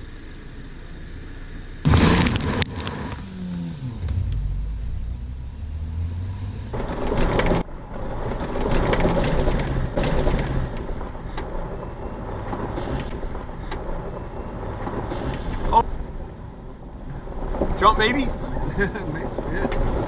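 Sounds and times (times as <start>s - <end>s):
low engine hum: 0.0s - 20.0s
loud rush of noise: 1.9s - 3.2s.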